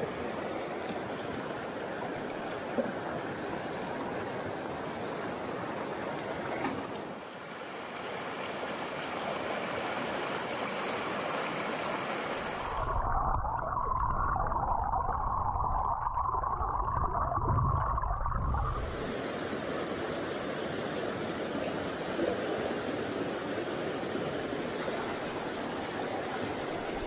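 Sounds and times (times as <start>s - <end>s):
mountain stream rushing: 0.0s - 13.0s, 18.8s - 27.0s
muffled underwater gurgling: 12.7s - 19.1s.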